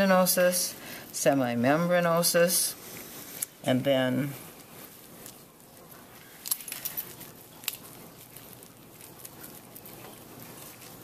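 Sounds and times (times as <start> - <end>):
faint handling noise: 2.7 - 11.0
sticky clicks and crackles: 6.4 - 11.0.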